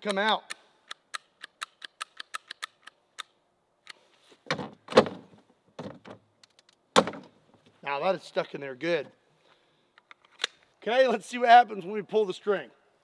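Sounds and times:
small metallic pistol clicks: 0.1 - 4.0.

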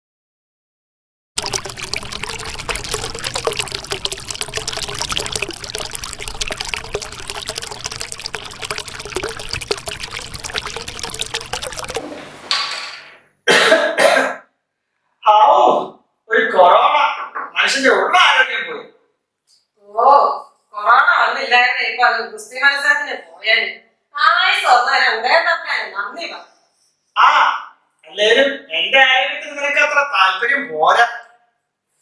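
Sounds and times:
liquid pouring into a glass: 1.4 - 12.1
loud cough: 13.4 - 14.5.

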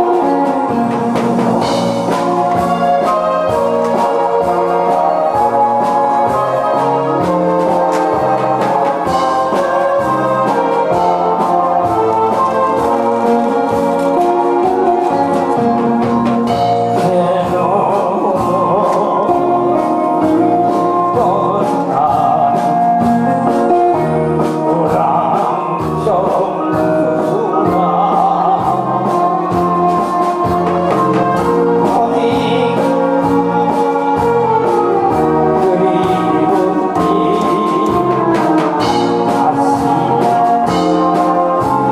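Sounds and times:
backing music with brass: 0.0 - 41.9
man singing into microphone: 16.5 - 41.9.

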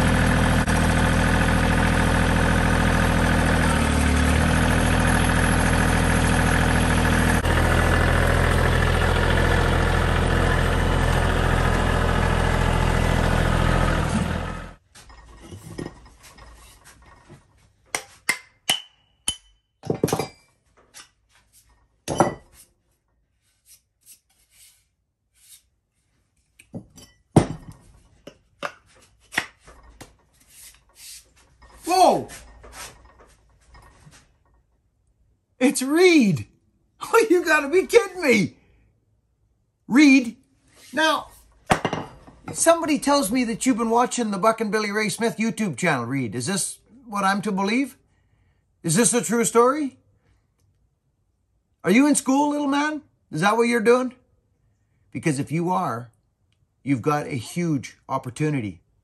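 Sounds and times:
tractor engine running: 0.0 - 15.4.

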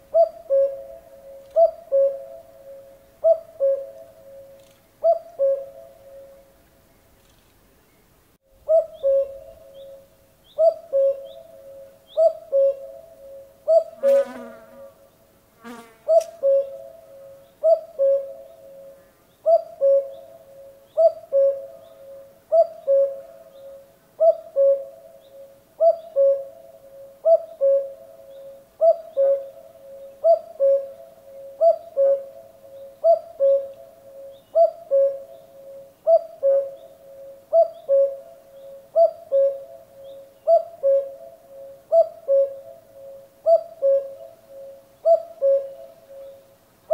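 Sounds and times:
cuckoo calling: 0.0 - 6.6, 8.6 - 14.1, 16.1 - 46.9.

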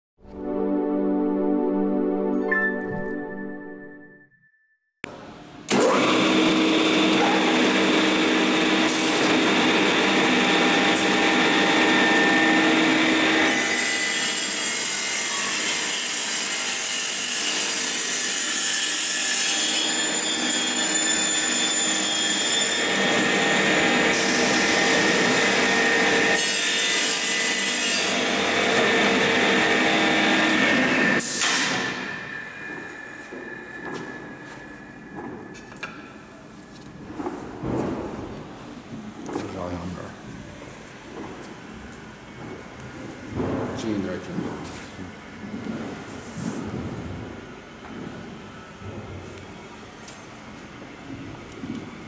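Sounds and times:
cutters milling wood: 5.7 - 34.4.

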